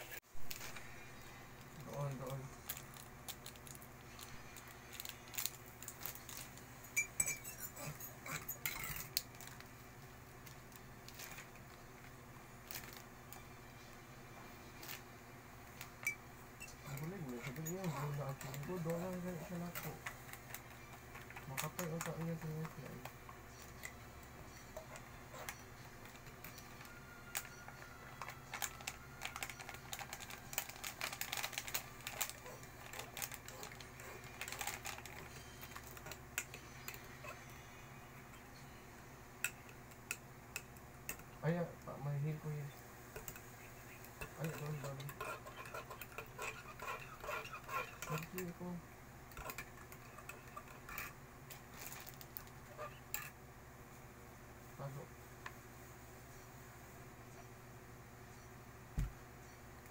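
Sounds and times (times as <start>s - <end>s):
plastic sachet crinkling: 0.4s - 6.7s, 12.6s - 13.1s, 26.1s - 36.2s, 51.6s - 52.6s
teaspoon clinking in ceramic mug: 7.0s - 7.8s.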